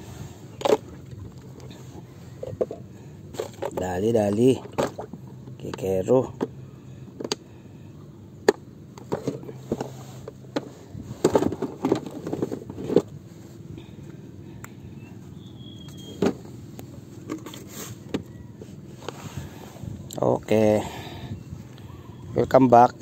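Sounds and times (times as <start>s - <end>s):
fish handling clicks and knocks: 2.4s - 5.8s, 7.2s - 7.4s.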